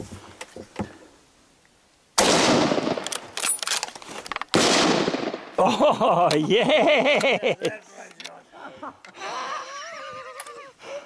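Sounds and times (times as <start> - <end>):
rifle shots ringing: 2.2 - 3.8, 4.5 - 5.6.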